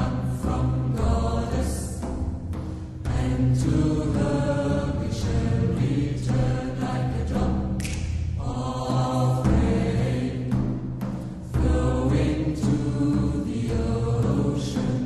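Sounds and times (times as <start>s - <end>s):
drum beats: 0.0s - 15.0s
group of voices chanting: 3.1s - 10.5s.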